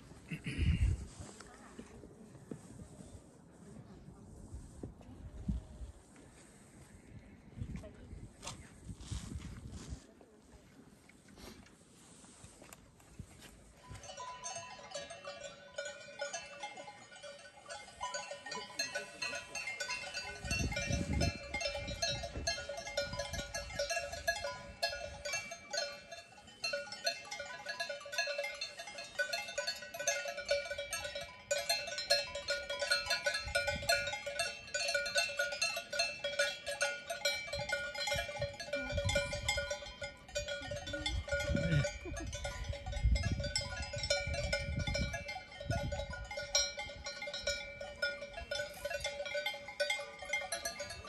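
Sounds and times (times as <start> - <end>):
faint outdoor background: 0.0 - 51.0
cowbells clanking: 13.8 - 51.0
bell-like notes ringing: 13.9 - 51.0.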